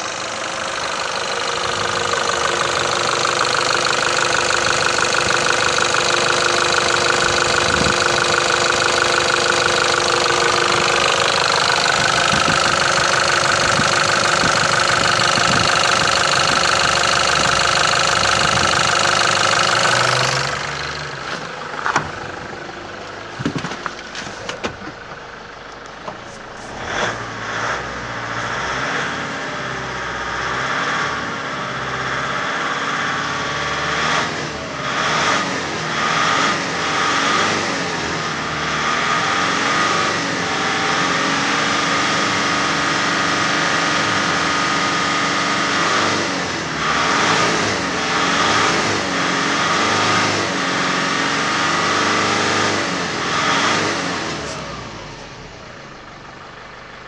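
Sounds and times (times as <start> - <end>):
diesel engine knocking: 0.0 - 27.9.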